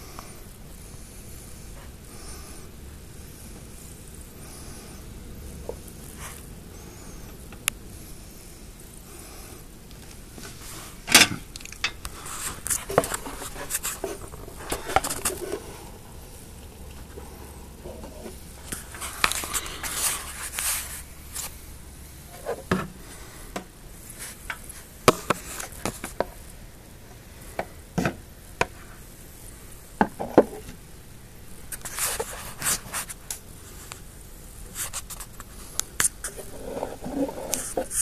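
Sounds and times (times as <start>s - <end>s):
camera rubbing on glass: 12.1s - 15.9s, 31.7s - 33.2s, 34.7s - 38.0s.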